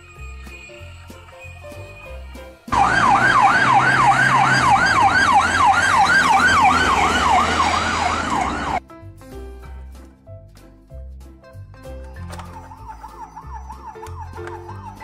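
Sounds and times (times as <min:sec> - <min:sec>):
ambulance siren yelping: 0:02.7 - 0:08.8, 0:12.6 - 0:15.0
low road noise: 0:02.7 - 0:08.8.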